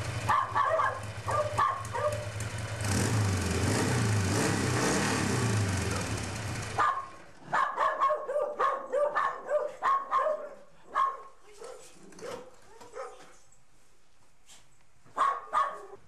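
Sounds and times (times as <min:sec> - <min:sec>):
motorcycle engine running: 0:00.0 - 0:07.3
dog barking: 0:00.2 - 0:02.3, 0:06.8 - 0:13.4, 0:15.1 - 0:16.0.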